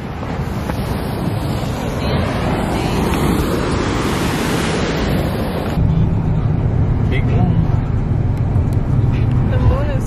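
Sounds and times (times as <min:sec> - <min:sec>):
surf breaking on rocks: 0:00.0 - 0:05.8
wind rumble on microphone: 0:00.0 - 0:10.0.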